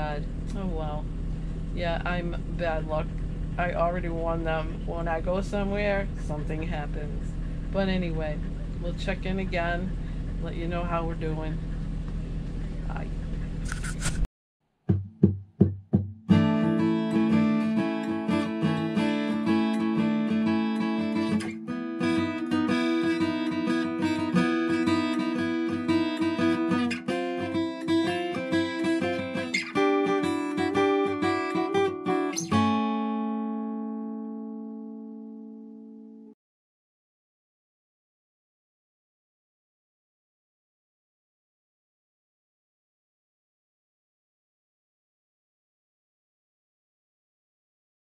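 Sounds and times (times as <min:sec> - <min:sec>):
acoustic guitar playing: 0:00.0 - 0:09.8, 0:14.9 - 0:36.4.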